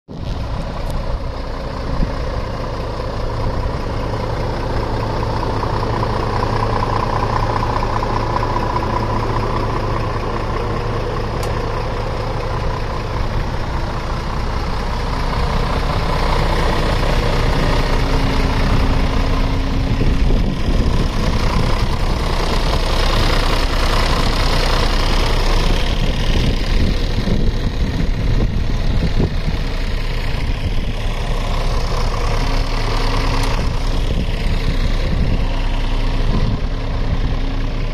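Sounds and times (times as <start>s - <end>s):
diesel truck engine idling: 0.1s - 37.9s.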